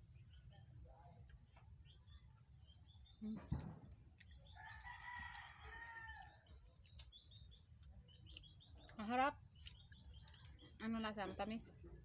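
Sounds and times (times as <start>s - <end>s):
faint rooster crowing: 4.6s - 6.6s.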